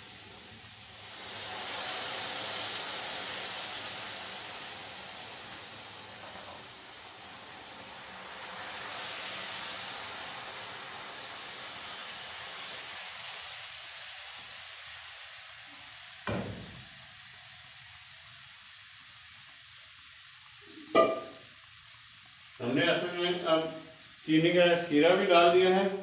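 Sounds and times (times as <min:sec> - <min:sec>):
syrup hissing and sizzling in oil: 0:00.0 - 0:26.0
metal clank: 0:20.9 - 0:21.4.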